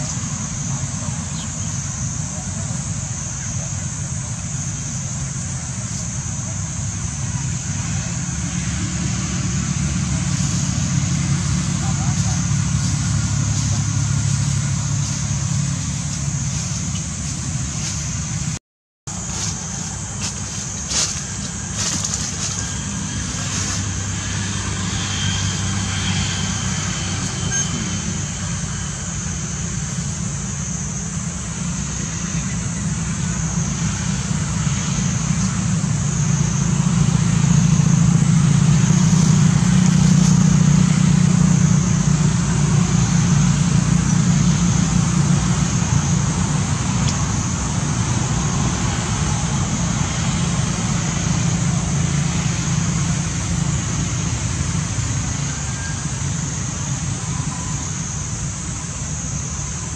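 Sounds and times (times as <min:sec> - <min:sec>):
low engine rumble: 0:00.0 - 0:59.9.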